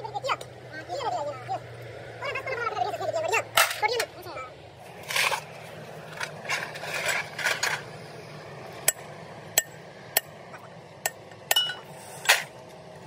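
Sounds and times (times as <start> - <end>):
metal parts handling: 5.0 - 7.9
hammer striking metal: 11.0 - 11.9.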